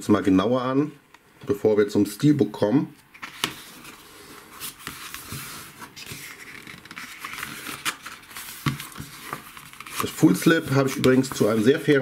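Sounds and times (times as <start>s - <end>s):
paper pages turning: 3.1s - 12.0s.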